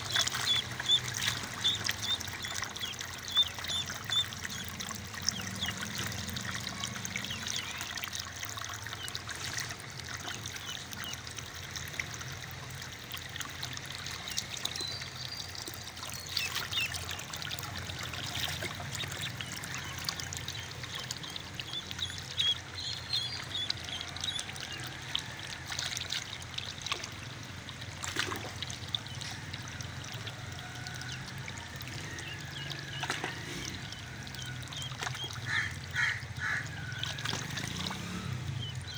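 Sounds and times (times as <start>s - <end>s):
ducklings peeping: 0.0s - 4.7s, 18.0s - 24.5s
water pouring from a hose: 0.0s - 38.9s.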